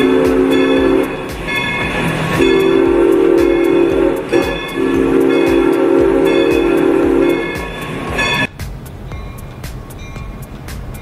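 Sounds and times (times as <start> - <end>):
steam locomotive chime whistle: 0.0 - 8.5
locomotive puffing: 0.0 - 11.0.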